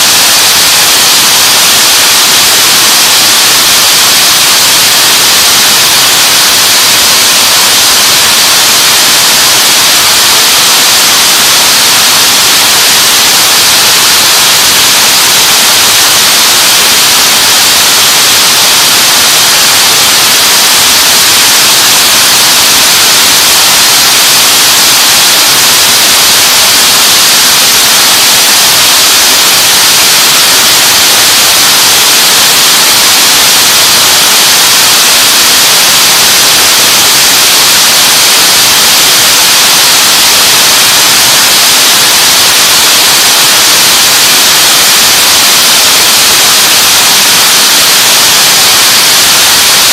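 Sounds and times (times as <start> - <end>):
braiding machines hissing: 0.0 - 31.8.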